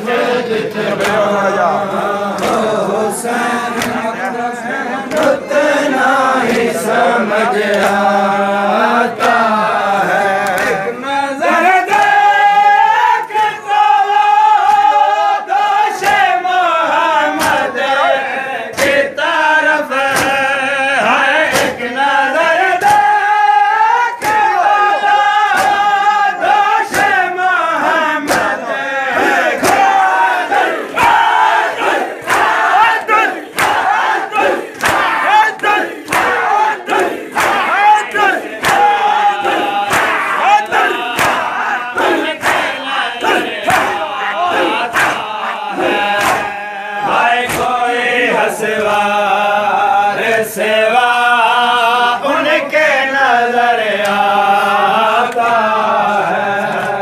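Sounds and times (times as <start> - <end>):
group chanting a lament: 0.0 - 57.0
hands slapping chests: 0.8 - 4.4, 5.0 - 5.5, 6.4 - 6.8, 7.5 - 8.2, 9.0 - 9.5, 10.4 - 10.9, 11.8 - 12.3, 14.6 - 14.9, 16.0 - 16.4, 17.3 - 17.8, 18.7 - 19.2, 20.0 - 20.6, 21.4 - 22.0, 22.6 - 28.6, 29.2 - 47.9.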